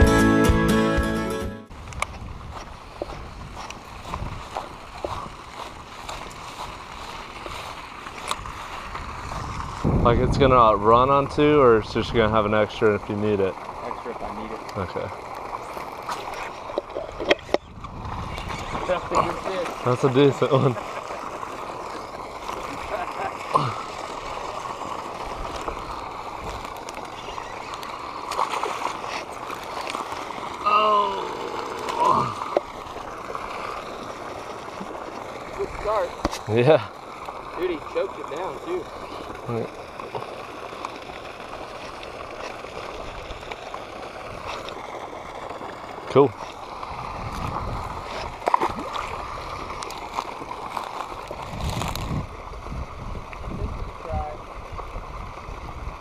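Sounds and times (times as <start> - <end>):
wind rumbling on microphone: 1.7 - 12.3, 17.0 - 19.6, 46.8 - 49.9, 51.2 - 56.0
fountain spray spattering: 18.5 - 52.3.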